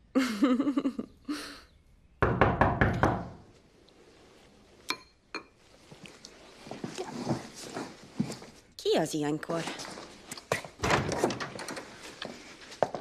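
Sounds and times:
knocking on a door: 2.2 - 3.4.

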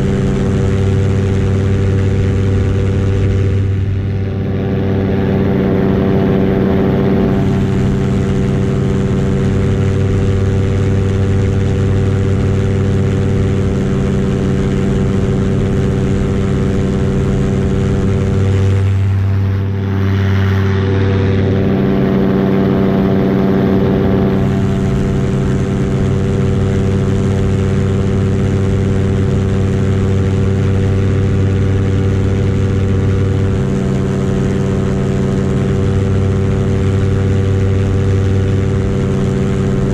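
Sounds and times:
paramotor engine and propeller: 0.0 - 39.9.

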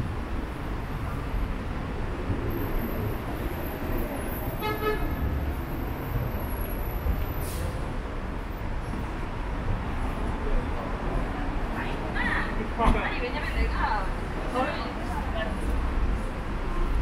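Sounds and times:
low traffic rumble: 0.0 - 17.0
car horn toot: 4.6 - 5.1.

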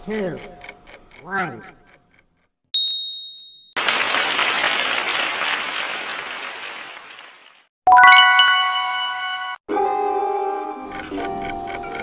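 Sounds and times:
bright bell-like chime: 7.9 - 9.6.

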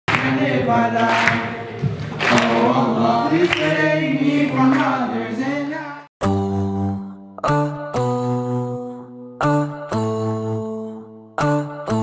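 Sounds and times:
male group singing in harmony: 0.1 - 5.6.

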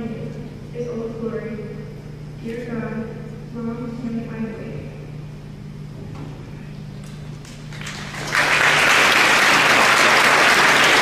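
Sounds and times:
audience applauding: 7.7 - 11.0.

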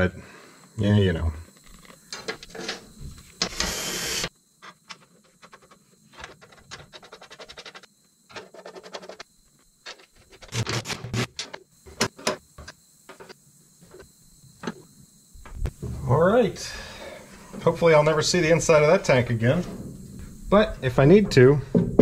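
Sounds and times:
bolts clicking and scraping: 4.6 - 14.0.

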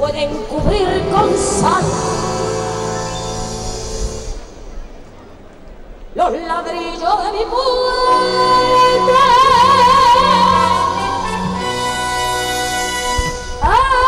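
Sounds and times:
woman singing with vibrato: 0.0 - 3.0, 6.2 - 14.0
band accompaniment: 0.0 - 6.0, 8.1 - 13.8.

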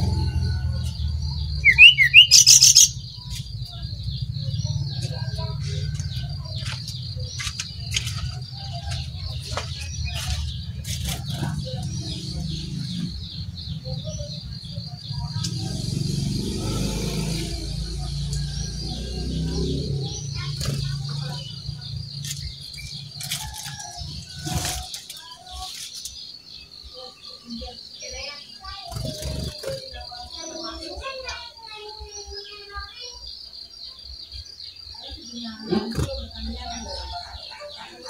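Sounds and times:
bird chirps and whistles: 1.6 - 3.1.

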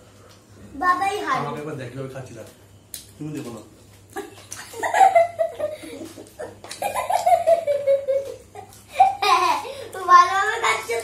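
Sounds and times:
people laughing and giggling: 4.1 - 9.7.

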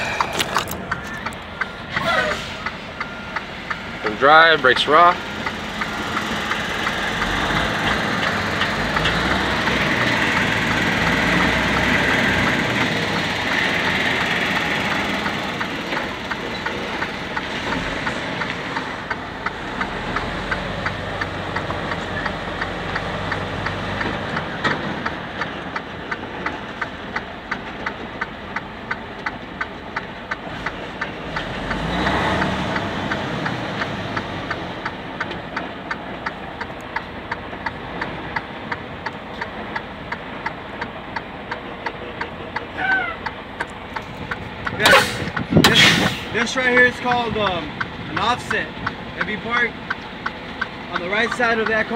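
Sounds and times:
diesel truck engine running: 0.0 - 51.9
steady clicking: 0.0 - 51.9.

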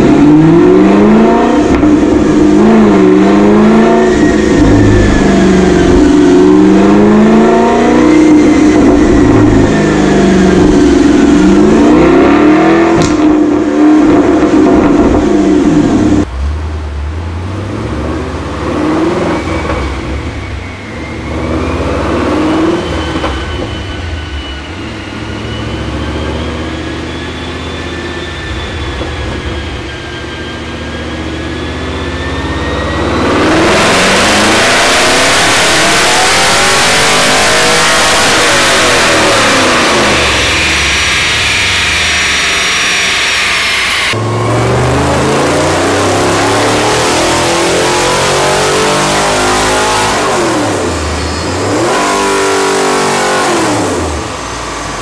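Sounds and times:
car engine revving hard: 0.0 - 16.3, 17.3 - 23.3, 30.8 - 55.0
engine with thin whine: 0.0 - 55.0
dyno roller noise: 1.6 - 13.2, 36.6 - 46.8.

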